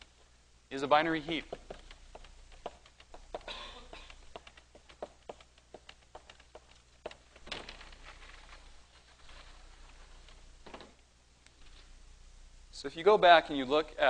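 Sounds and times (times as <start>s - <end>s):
chalk tapping on blackboard: 4.2s - 7.2s.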